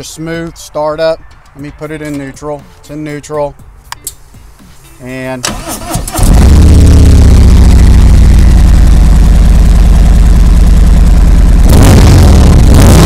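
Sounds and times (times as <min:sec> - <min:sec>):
motorcycle engine idling: 0:06.3 - 0:11.7.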